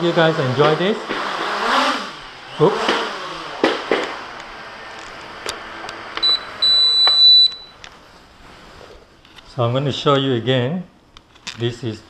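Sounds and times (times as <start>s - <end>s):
high electronic beep: 6.2s - 7.8s.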